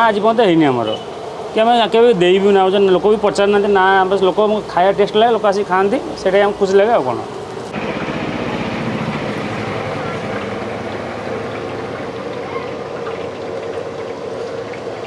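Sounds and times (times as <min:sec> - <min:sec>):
oil sizzling in a wok: 0:08.8 - 0:15.0.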